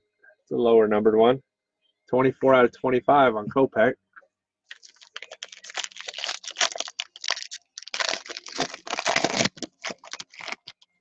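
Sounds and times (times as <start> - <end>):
foil wrapper crinkling and tearing: 4.7 - 11.0.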